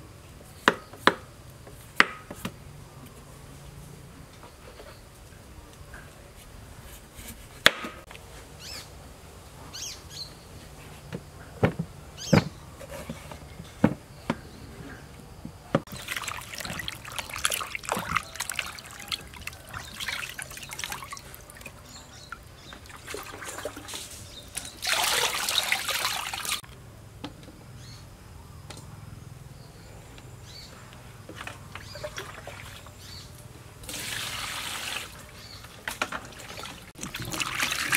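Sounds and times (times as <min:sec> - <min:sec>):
water splashing and sloshing: 0:15.8 - 0:26.7, 0:31.3 - 0:33.1, 0:33.8 - 0:37.9
water pouring: 0:15.9 - 0:26.6, 0:33.8 - 0:35.3, 0:36.1 - 0:37.9.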